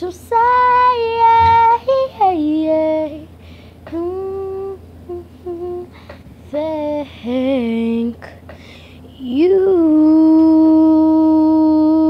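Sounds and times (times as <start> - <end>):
girl humming a slow tune: 3.8 - 12.0.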